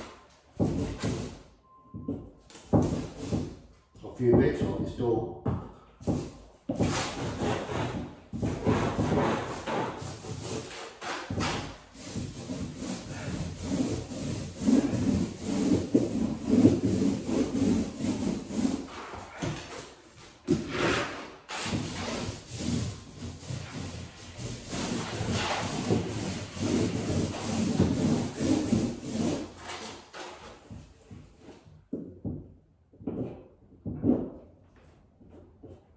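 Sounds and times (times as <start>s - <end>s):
paint roller rubbing on wood: 6.0s - 30.8s.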